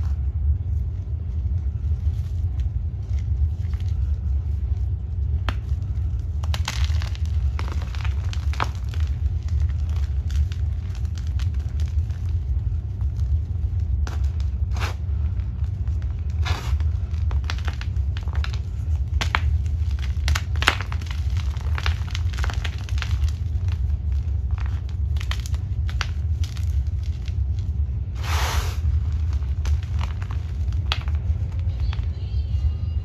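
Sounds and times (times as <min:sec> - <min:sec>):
steady low rumble: 0:00.0 - 0:33.0
chalk block crunching: 0:16.3 - 0:23.8, 0:28.2 - 0:31.2.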